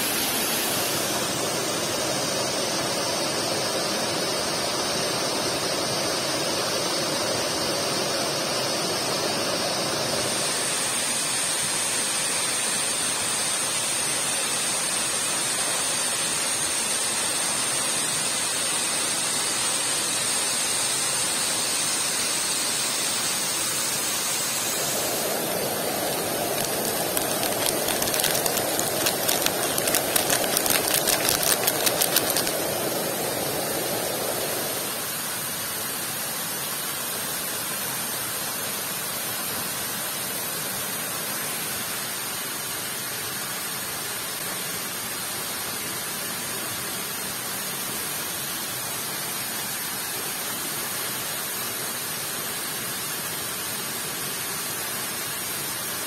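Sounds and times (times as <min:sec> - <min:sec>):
heavy rain on a tent: 0:24.9 - 0:32.8
fast sharp clicks: 0:26.6 - 0:32.6.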